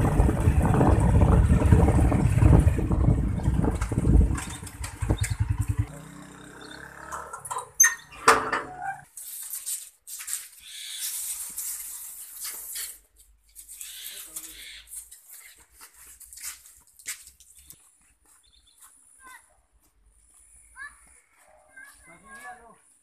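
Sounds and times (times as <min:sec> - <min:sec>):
hose dragged over concrete: 0:07.8 - 0:17.4.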